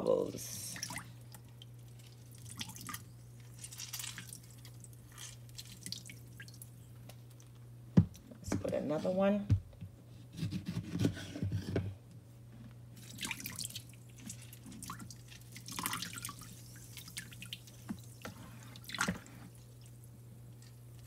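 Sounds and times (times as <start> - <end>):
juice dripping into water: 0.8 - 7.6, 13.0 - 21.0.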